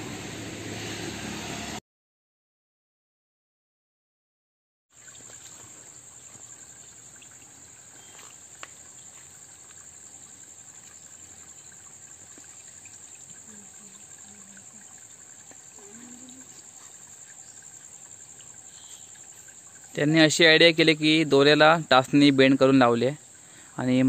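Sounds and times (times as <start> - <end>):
insects chirring: 4.9 - 24.0.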